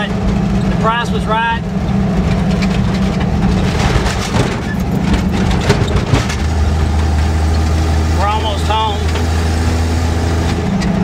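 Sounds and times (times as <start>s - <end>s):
truck engine droning: 0.0s - 11.0s
short clatters and rattles: 1.9s - 7.8s.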